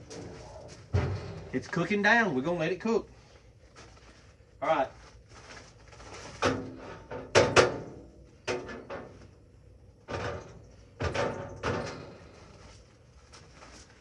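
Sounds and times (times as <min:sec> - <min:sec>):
hard objects clunking and clattering: 0:00.0 - 0:01.8, 0:06.2 - 0:09.3, 0:10.0 - 0:12.5.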